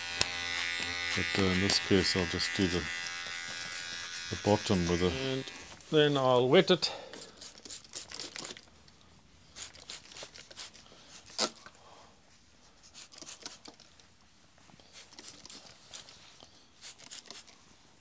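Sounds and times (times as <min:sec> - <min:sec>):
spray bottle spritzes: 0:07.2 - 0:08.6, 0:09.6 - 0:11.6, 0:12.9 - 0:13.7, 0:16.8 - 0:17.6.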